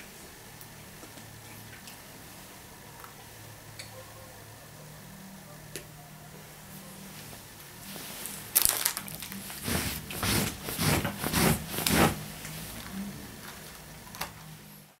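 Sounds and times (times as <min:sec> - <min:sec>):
wrapper crinkling and rustling: 0:07.9 - 0:12.8.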